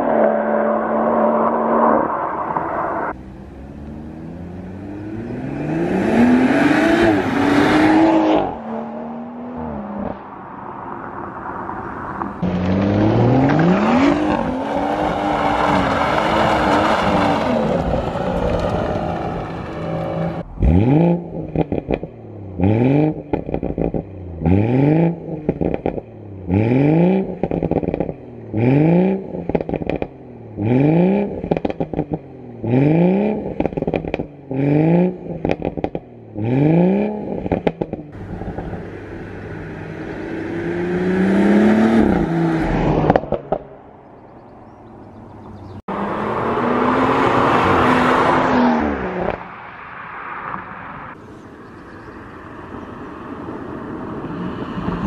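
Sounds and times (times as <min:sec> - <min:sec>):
car engine revving: 0:00.0 - 0:43.9
car engine accelerating: 0:00.0 - 0:49.5
exhaust crackles and pops: 0:11.3 - 0:13.8, 0:15.0 - 0:20.7, 0:21.4 - 0:22.2, 0:23.1 - 0:24.1, 0:25.5 - 0:26.1, 0:27.3 - 0:28.3, 0:29.4 - 0:30.2, 0:31.3 - 0:32.2, 0:33.4 - 0:34.3, 0:35.3 - 0:36.1, 0:37.3 - 0:38.9, 0:42.6 - 0:43.8.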